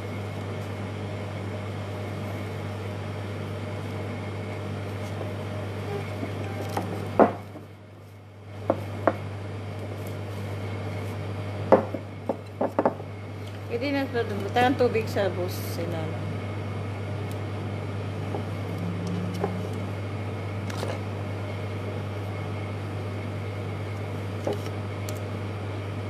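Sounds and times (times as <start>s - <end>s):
low machine hum: 0.0s - 26.0s
knocks on wooden table: 7.2s - 7.4s.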